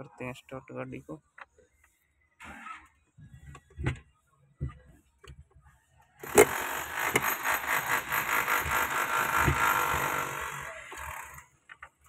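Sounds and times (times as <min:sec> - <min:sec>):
diesel engine cranking: 0:06.2 - 0:11.6.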